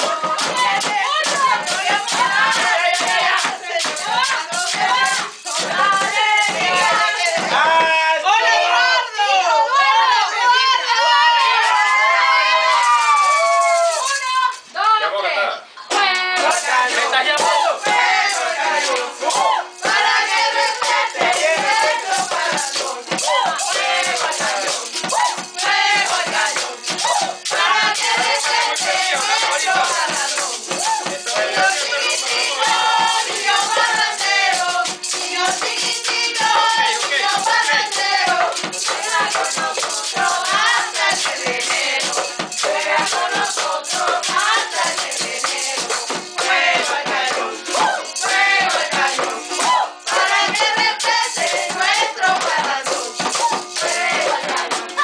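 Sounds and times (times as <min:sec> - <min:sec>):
plastic basin beaten with sticks: 0:00.0 - 0:08.1, 0:16.0 - 0:55.0
maracas shaken: 0:00.0 - 0:15.0, 0:15.8 - 0:55.0
group singing: 0:00.0 - 0:55.0.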